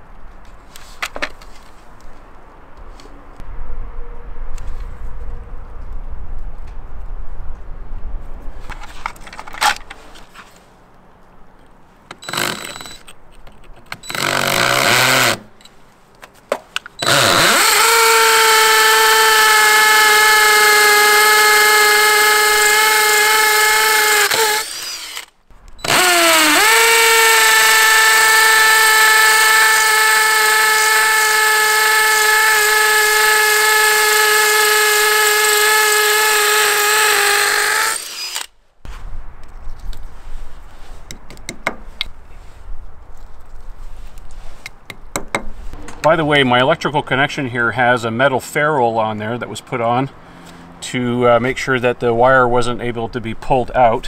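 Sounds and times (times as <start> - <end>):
cordless drill boring into brick: 12.1 - 13.0, 13.9 - 15.5, 17.0 - 38.5.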